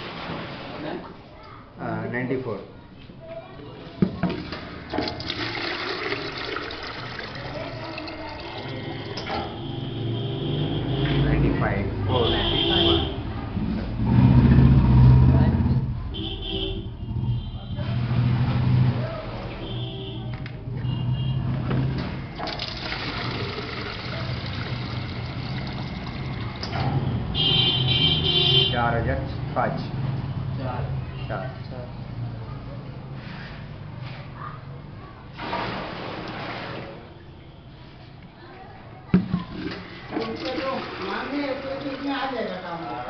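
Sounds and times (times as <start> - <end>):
liquid pouring into a pail: 4.3 - 9.4, 22.3 - 26.7, 35.4 - 37.0, 39.2 - 42.7.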